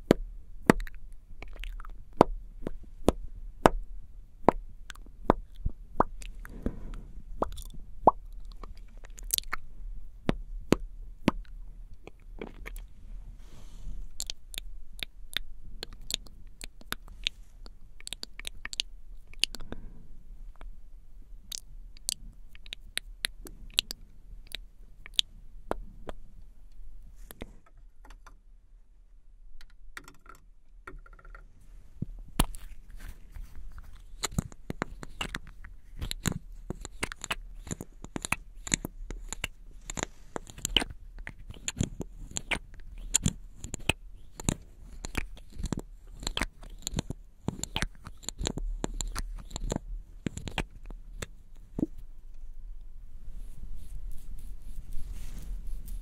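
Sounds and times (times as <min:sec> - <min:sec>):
tongue clicks: 0:07.4 - 0:09.6, 0:14.2 - 0:19.9, 0:21.5 - 0:26.2, 0:33.7 - 0:51.9
wet lip smacks: 0:14.2 - 0:19.8, 0:32.4 - 0:51.9.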